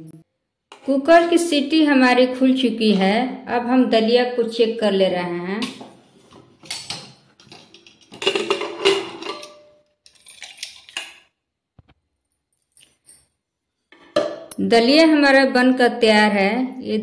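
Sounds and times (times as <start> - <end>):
metal lid scraping and clattering: 5.6 - 9.7.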